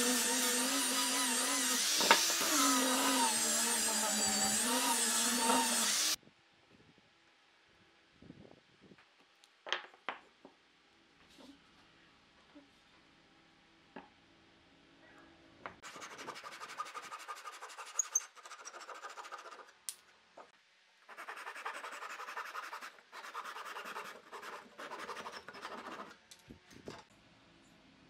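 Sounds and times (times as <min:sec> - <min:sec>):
hand saw cutting wood: 0:00.0 - 0:06.2, 0:21.1 - 0:26.2.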